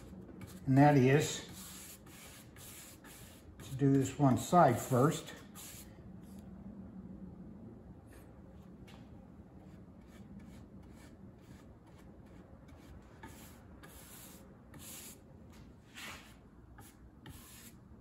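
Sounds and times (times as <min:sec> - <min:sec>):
paintbrush swishing on wood: 0:00.4 - 0:05.9, 0:09.7 - 0:15.2, 0:15.9 - 0:17.8.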